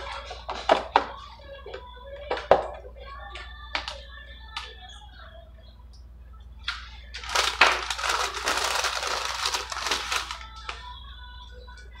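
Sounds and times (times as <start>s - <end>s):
paper packaging crinkling: 7.1s - 10.9s.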